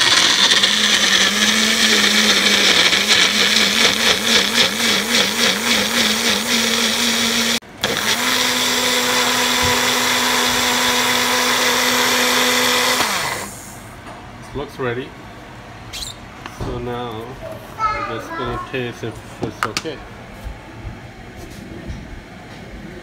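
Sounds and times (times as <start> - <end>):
blender motor grinding: 0.0 - 13.6.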